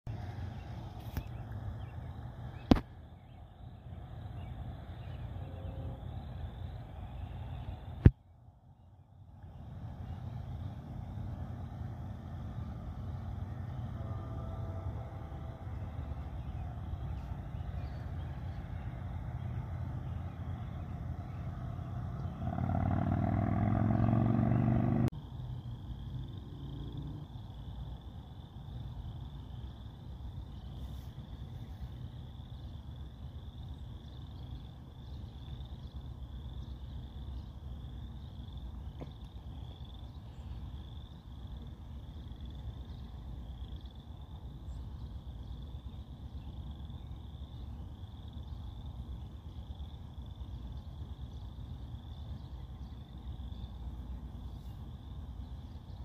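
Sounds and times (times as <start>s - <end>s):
low steady rumble: 0.1s - 56.0s
freight train rumbling: 9.6s - 22.6s
train engine accelerating: 10.2s - 23.0s
faint bird chirps: 16.2s - 22.4s.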